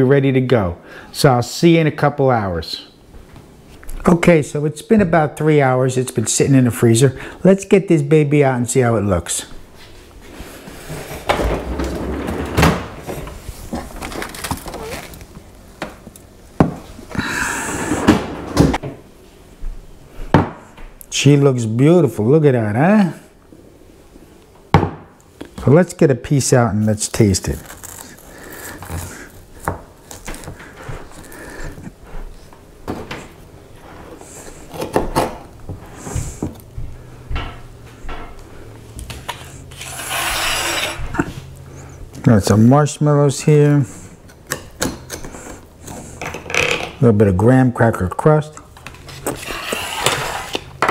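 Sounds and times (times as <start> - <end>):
packaging rustle: 13.6 - 15.4, 27.2 - 30.6
utensils scraping a pie dish: 39.4 - 41.1, 49.0 - 50.8.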